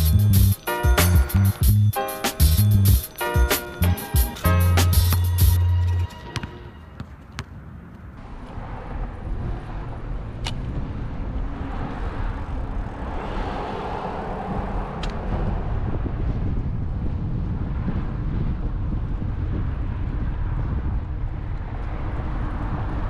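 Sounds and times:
music track: 0:00.0 - 0:07.0
low road rumble: 0:00.0 - 0:23.0
wind rushing over microphone: 0:07.6 - 0:23.0
vehicle passing by: 0:08.0 - 0:17.0.

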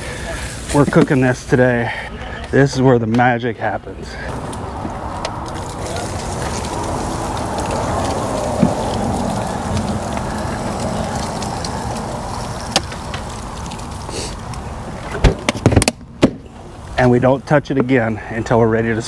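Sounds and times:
liquid hissing on hot meat: 0:00.0 - 0:01.9, 0:04.3 - 0:15.0.

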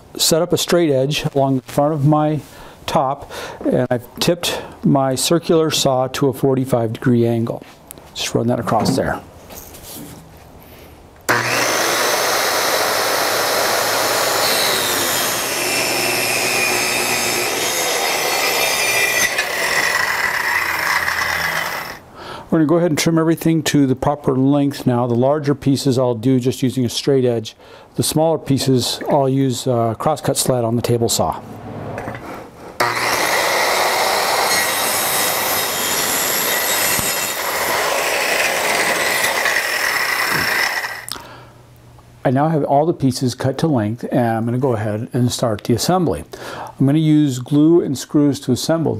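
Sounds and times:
circular saw cutting wood: 0:11.3 - 0:22.0, 0:32.8 - 0:41.1.

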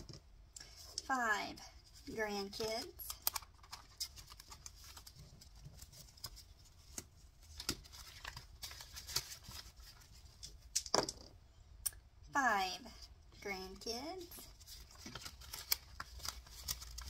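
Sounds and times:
paper bill rustling: 0:02.0 - 0:10.7, 0:14.4 - 0:17.0
vinyl pouches crinkling: 0:02.6 - 0:10.7, 0:14.5 - 0:17.0.

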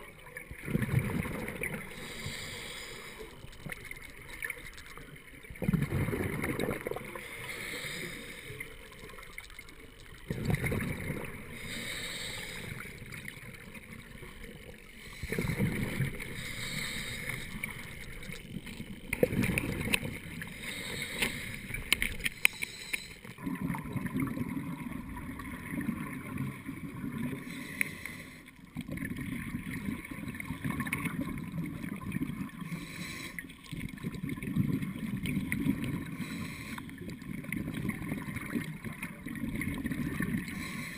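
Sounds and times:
exhaled bubbles underwater: 0:00.0 - 0:22.3, 0:23.2 - 0:40.9
regulator inhalation hiss: 0:01.9 - 0:03.5, 0:07.2 - 0:08.9, 0:11.5 - 0:13.1, 0:16.2 - 0:18.2, 0:20.5 - 0:23.3, 0:32.7 - 0:33.5, 0:36.1 - 0:36.9, 0:40.5 - 0:40.9
sharp clicks: 0:21.2 - 0:23.2.

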